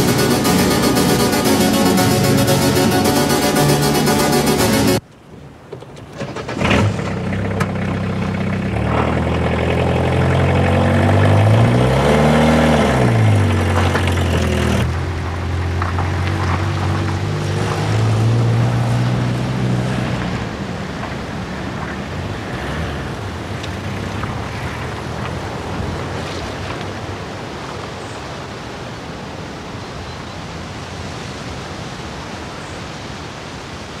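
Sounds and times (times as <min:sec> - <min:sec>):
car engine pulling away: 0:06.2 - 0:26.4.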